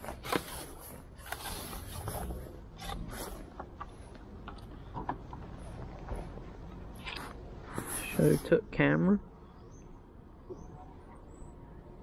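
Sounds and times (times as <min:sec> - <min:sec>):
net mesh scraping and rustling: 0:00.0 - 0:03.5.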